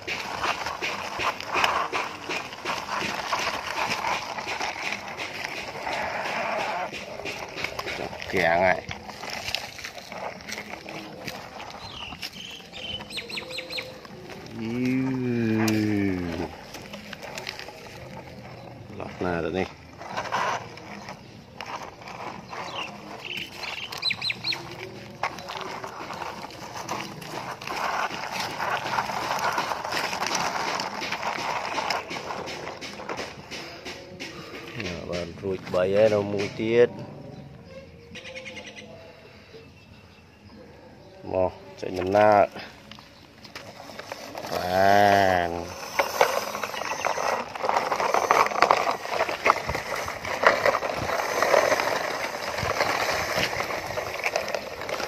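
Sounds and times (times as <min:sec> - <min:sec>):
toy truck wheels crunching gravel: 0:00.0 - 0:55.0
plastic toy clicks and rattles: 0:43.6 - 0:55.0.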